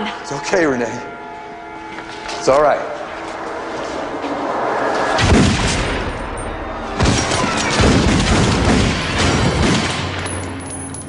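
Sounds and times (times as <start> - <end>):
gunshots with ringing tail: 5.1 - 10.3.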